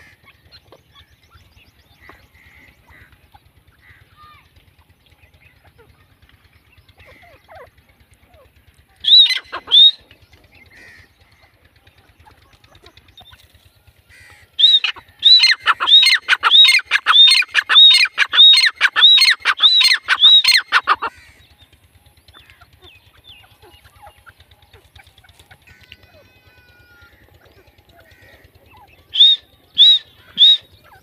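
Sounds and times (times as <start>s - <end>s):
francolin calling: 9.0s - 11.2s, 12.0s - 31.0s.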